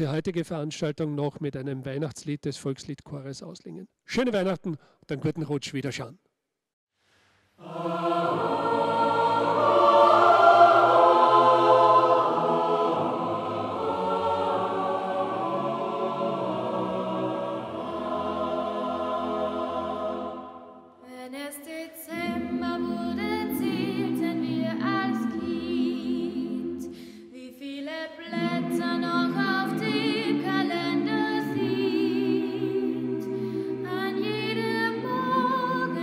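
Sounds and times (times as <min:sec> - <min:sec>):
choir singing folk song: 0:07.6 - 0:20.9, 0:22.1 - 0:27.1, 0:28.1 - 0:36.0.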